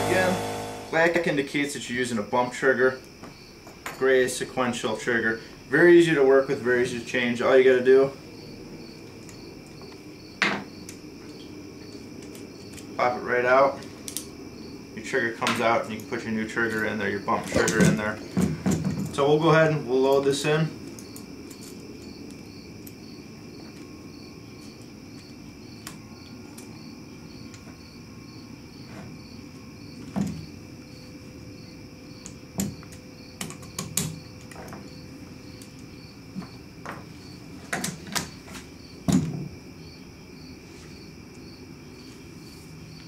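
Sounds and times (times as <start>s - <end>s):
steady low hum: 0.0s - 1.5s
faint high whine: 0.0s - 3.0s.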